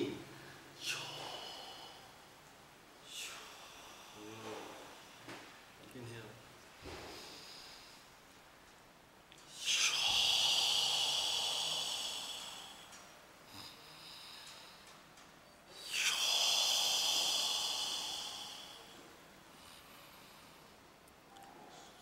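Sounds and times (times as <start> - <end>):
long exhalations: 3.0 - 5.5, 9.6 - 15.0, 15.7 - 20.8.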